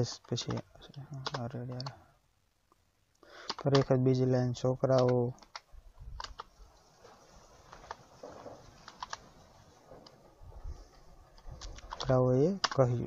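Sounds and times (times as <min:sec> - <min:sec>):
keyboard key clicks: 0:00.3 - 0:01.9, 0:03.4 - 0:04.0, 0:04.9 - 0:06.5.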